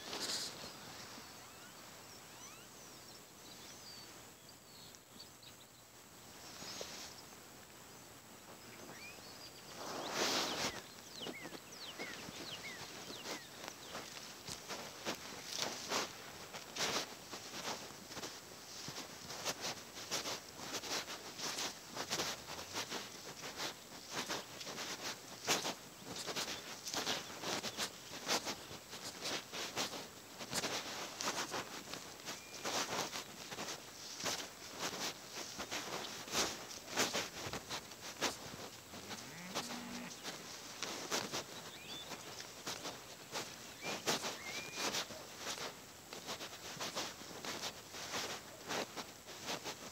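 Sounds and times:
foot crunching dry grass: 0:00.0 - 0:01.3, 0:09.7 - 0:49.9
faint high bird chirps: 0:00.0 - 0:05.9, 0:08.6 - 0:14.2, 0:32.3 - 0:32.8, 0:41.5 - 0:42.4, 0:43.7 - 0:45.2.

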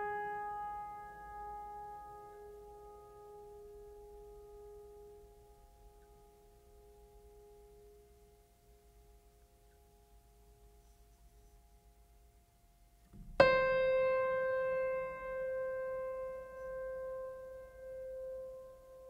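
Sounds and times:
piano note ringing: 0:13.2 - 0:19.0.

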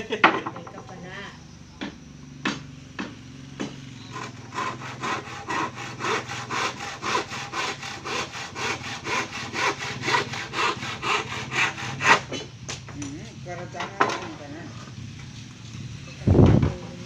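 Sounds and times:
handsaw cutting wood: 0:02.5 - 0:12.4.

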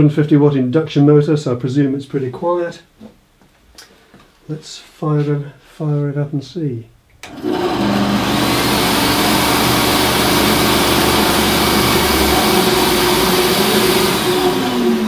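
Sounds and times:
bandsaw motor humming: 0:07.2 - 0:15.0.

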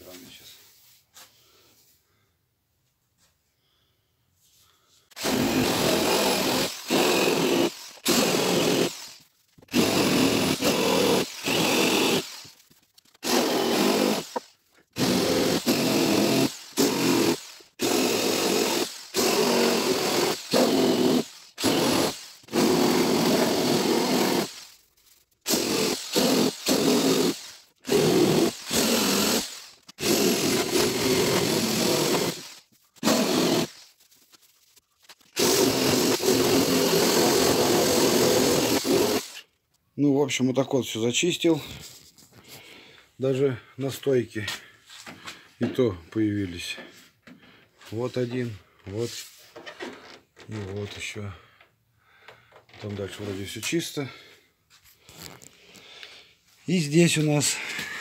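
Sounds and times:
rotary tool grinding metal: 0:05.1 - 0:39.5.

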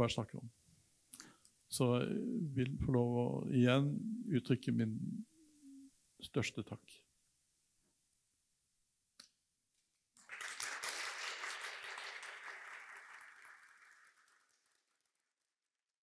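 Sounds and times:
audience applauding: 0:10.2 - 0:15.2.

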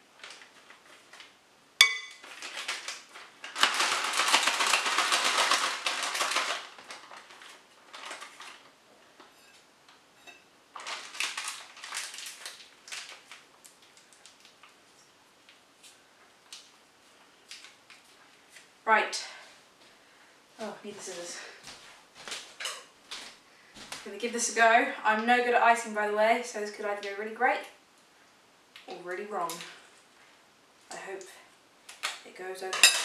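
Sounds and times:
plastic piping bag crinkling: 0:00.0 - 0:01.4, 0:02.2 - 0:09.3, 0:10.7 - 0:18.7
spoon clinking: 0:01.8 - 0:02.2.

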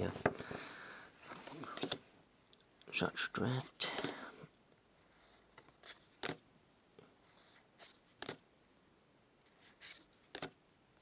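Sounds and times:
cards sliding and tapping on table: 0:09.8 - 0:10.6.

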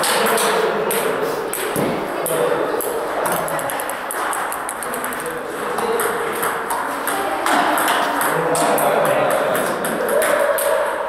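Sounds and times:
table tennis ball clicking: 0:00.0 - 0:10.8.

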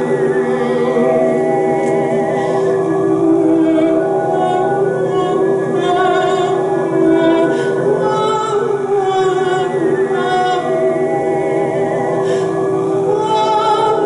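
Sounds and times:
layered voice drone: 0:00.0 - 0:14.0
sustained sung tones: 0:00.0 - 0:14.0
wavering high sung notes: 0:00.0 - 0:14.0.

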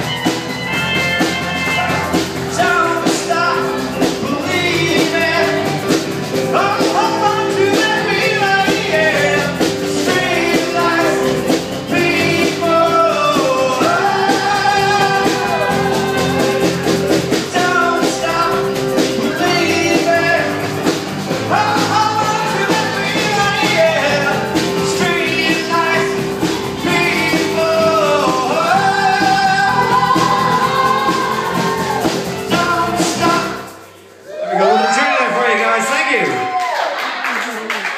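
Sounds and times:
guitar: 0:00.0 - 0:34.8
keyboard: 0:00.0 - 0:36.4
person singing: 0:00.7 - 0:33.9.

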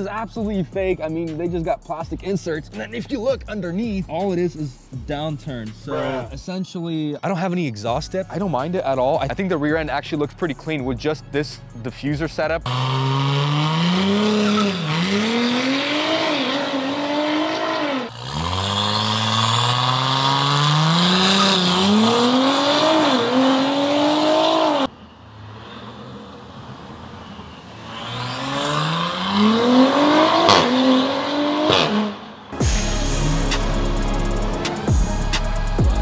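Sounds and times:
turbocharged car engine accelerating: 0:11.8 - 0:36.0.

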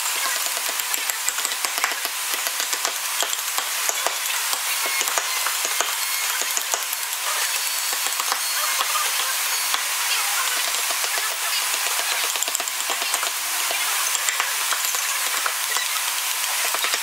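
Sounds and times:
chisels clicking and scraping wood: 0:00.1 - 0:17.0.

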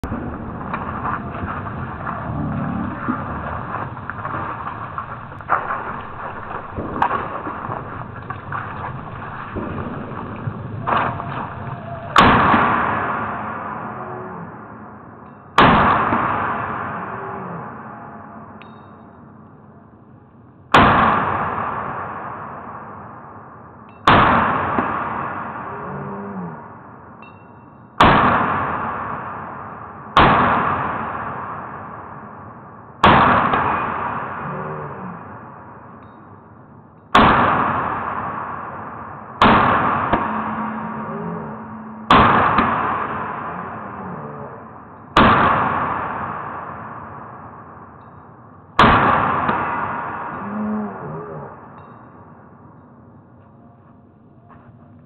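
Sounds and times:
low drawn-out rumble: 0:00.0 - 0:15.3, 0:37.5 - 0:52.6
slowed rifle shots: 0:00.0 - 0:19.1, 0:20.7 - 0:53.3.

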